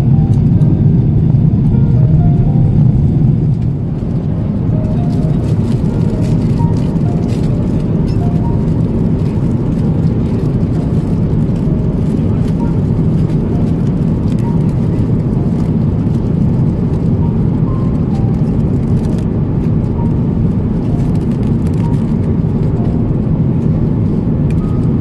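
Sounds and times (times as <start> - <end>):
airliner cabin engine drone: 0.0 - 25.0.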